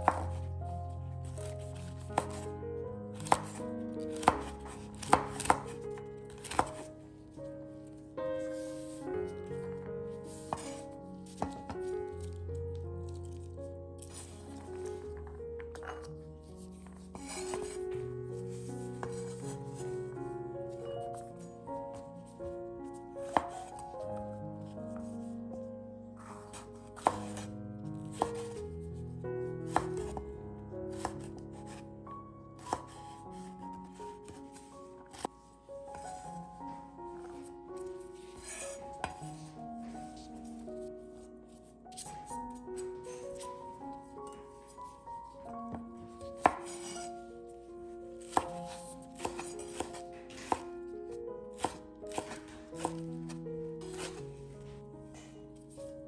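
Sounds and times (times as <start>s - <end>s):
knife chopping on wooden board: 0.0s - 0.4s, 2.2s - 2.4s, 3.2s - 3.6s, 4.2s - 5.7s, 6.3s - 6.9s, 10.4s - 10.8s, 26.5s - 27.5s, 29.7s - 30.0s, 48.2s - 50.6s, 51.6s - 53.0s, 53.9s - 54.2s
soft background music: 0.0s - 56.0s.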